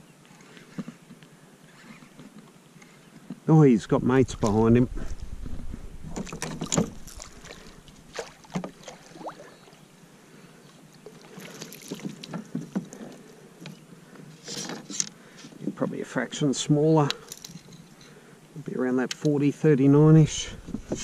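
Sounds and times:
fish splashing at surface: 6.2s - 9.6s.

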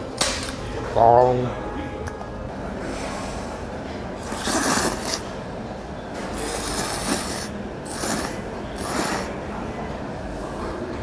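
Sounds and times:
man slurping noodles: 4.2s - 5.3s, 6.4s - 9.4s.

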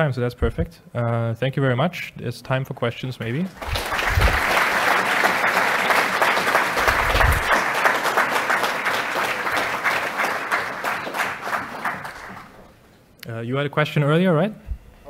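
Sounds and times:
audience applauding: 3.5s - 12.7s.

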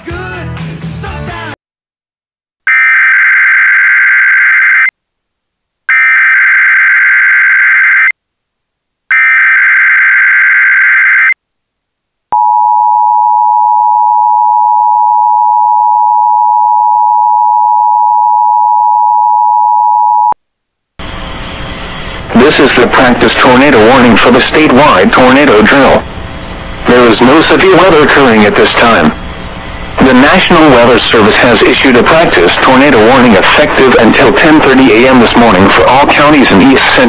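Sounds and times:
loud steady attention tone: 12.3s - 20.4s.

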